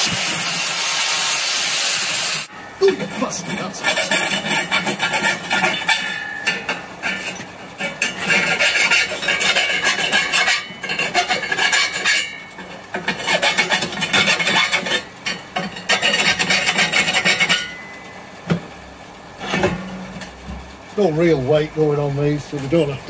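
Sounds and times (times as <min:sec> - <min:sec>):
file rasping on steel: 0:03.5 - 0:06.3, 0:07.0 - 0:17.8.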